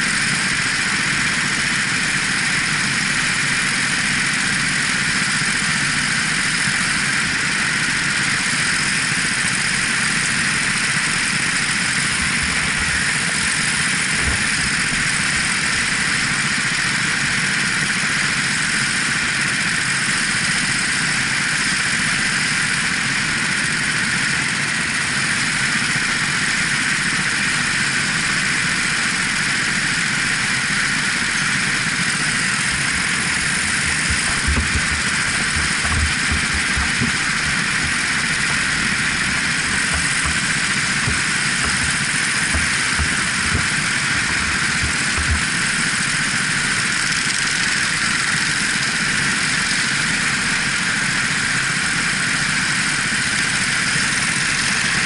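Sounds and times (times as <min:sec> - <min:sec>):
kart engine running: 0:00.0 - 0:55.0
low thumps: 0:32.7 - 0:45.7.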